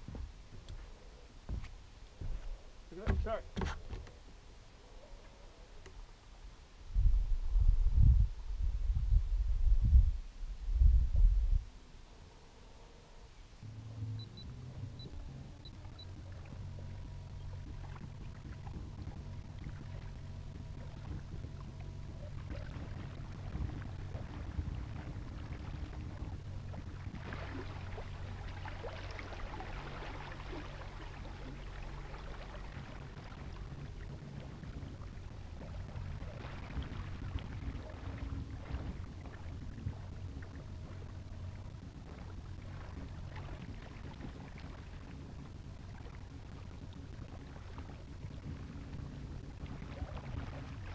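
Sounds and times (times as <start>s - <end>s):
water splashing against hull: 0.0s - 4.4s, 13.6s - 50.9s
electric boat motor humming: 13.6s - 50.9s.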